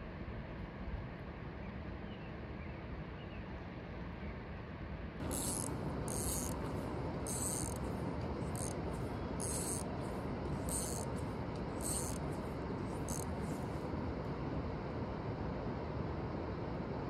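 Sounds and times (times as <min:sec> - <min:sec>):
buzzy insect chirps: 0:05.2 - 0:13.8
steady rushing background: 0:05.2 - 0:17.0.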